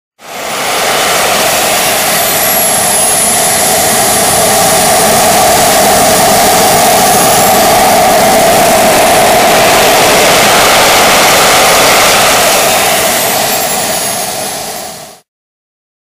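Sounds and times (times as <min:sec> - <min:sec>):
jet engine roar with high whine: 0:00.2 - 0:15.3.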